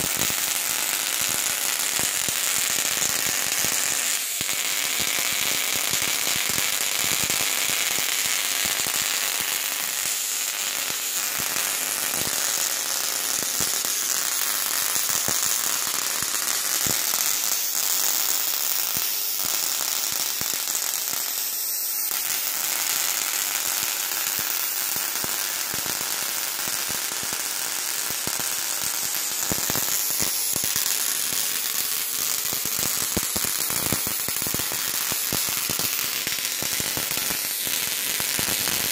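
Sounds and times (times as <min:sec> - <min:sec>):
tesla coil arc crackling: 0:01.5 - 0:21.3, 0:28.1 - 0:38.9.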